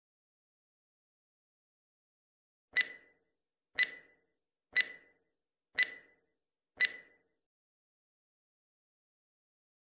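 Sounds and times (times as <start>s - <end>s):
timer ticking: 2.8s - 7.3s.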